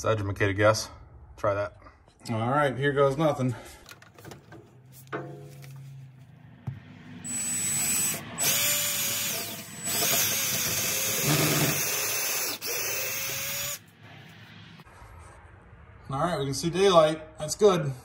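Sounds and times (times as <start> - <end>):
cordless drill whining: 7.2 - 13.8.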